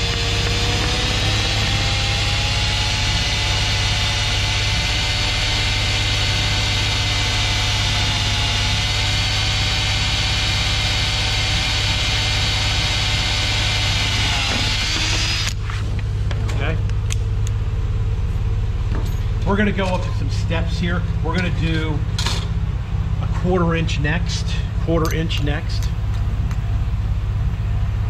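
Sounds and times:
cordless drill cutting metal: 0.0s - 15.6s
steady low hum: 0.0s - 28.0s.

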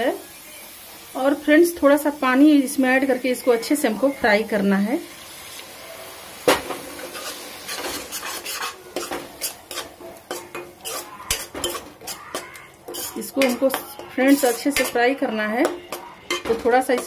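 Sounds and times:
faint sizzling in oil: 0.0s - 17.0s
spoon knocking pan: 6.4s - 17.0s
metal spoon scraping a pan: 6.5s - 17.0s.

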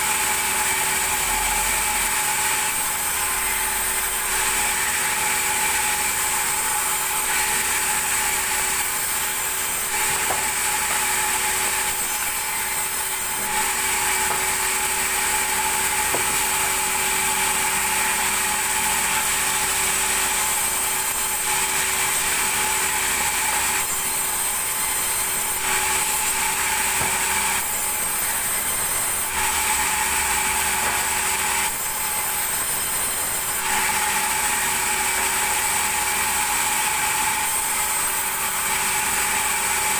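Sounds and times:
band saw whining: 0.0s - 39.9s
saw cutting hiss: 6.1s - 18.2s, 20.3s - 33.6s.

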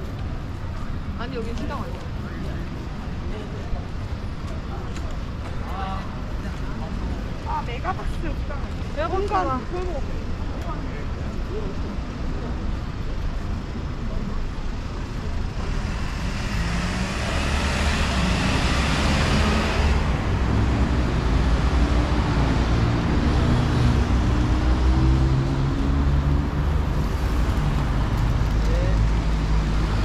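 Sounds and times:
cars driving past: 14.7s - 30.0s.

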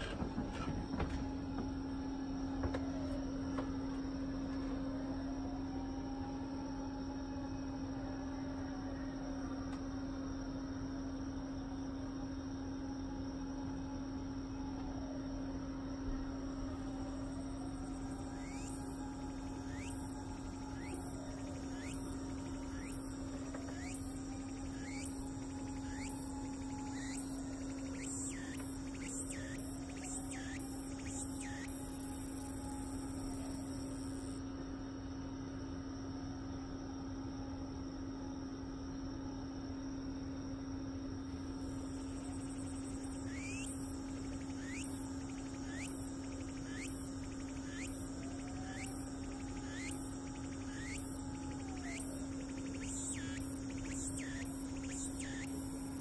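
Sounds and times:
cicada singing: 16.2s - 34.4s, 41.2s - 56.0s
steady low hum: 16.2s - 34.4s, 41.3s - 56.0s.

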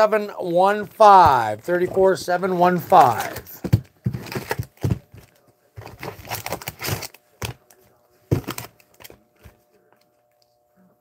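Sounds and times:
foil packs crinkling: 0.0s - 7.7s.

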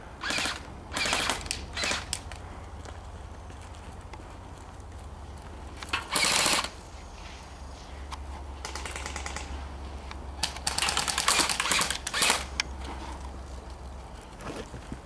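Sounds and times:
airsoft gun rapid clicking: 0.2s - 2.4s, 5.8s - 6.7s, 8.6s - 9.6s, 10.4s - 12.7s.

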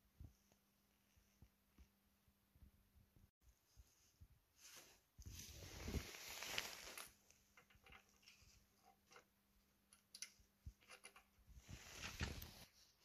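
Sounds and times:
handling rustle: 4.6s - 9.2s, 11.5s - 13.0s
metal clicks and ticks: 9.9s - 11.3s.

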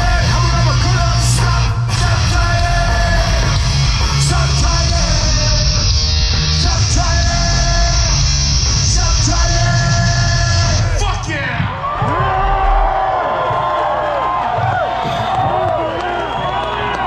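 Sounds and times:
electric guitars: 0.0s - 11.0s
punk rock band playing live: 0.0s - 11.2s
shouted lead vocals: 0.0s - 17.0s.

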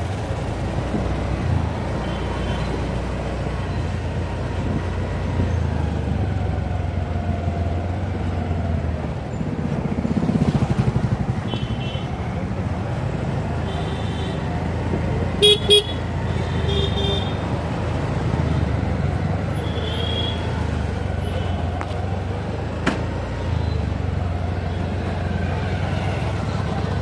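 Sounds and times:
car engine and road rumble: 0.0s - 27.0s
vehicle horn toots: 15.4s - 17.4s.

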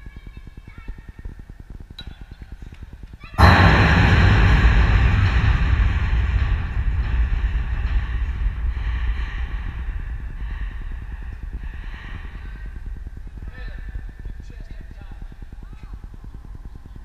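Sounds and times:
low rumble on microphone: 3.4s - 16.5s.

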